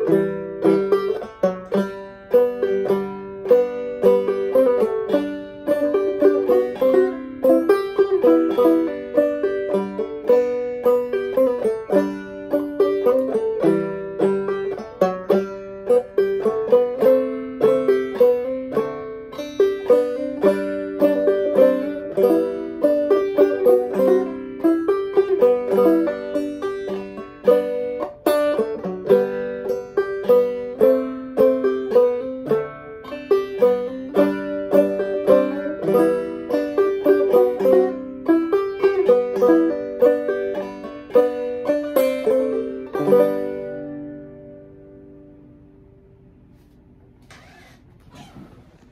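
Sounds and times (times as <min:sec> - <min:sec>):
banjo waltz melody: 0:00.0 - 0:46.9.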